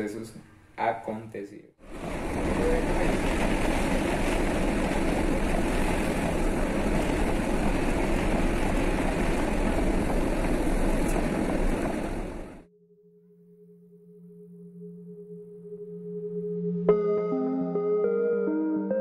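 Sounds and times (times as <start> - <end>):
heavy rain and wind on truck: 1.8 - 12.6
tyres on flooded road: 1.8 - 12.6.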